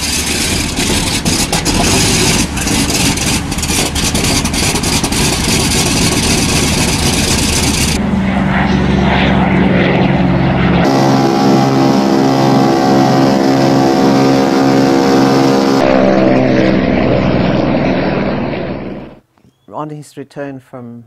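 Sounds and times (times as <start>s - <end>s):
piston engines running roughly: 0.0s - 8.0s
propeller drone: 0.0s - 19.2s.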